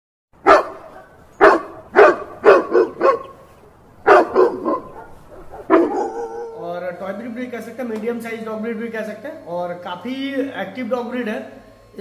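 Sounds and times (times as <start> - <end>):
dog barking: 0.4 - 6.6.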